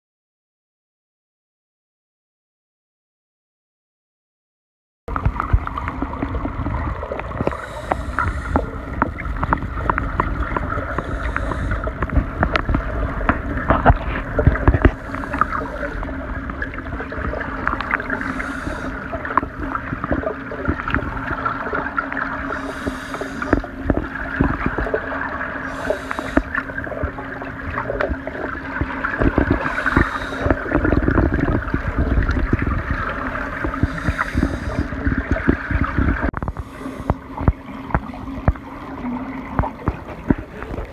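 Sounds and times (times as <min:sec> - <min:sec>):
steady low hum: 0:05.1 - 0:40.9
underwater crackle: 0:05.1 - 0:40.9
diver breathing hiss and bubbles: 0:05.2 - 0:40.9.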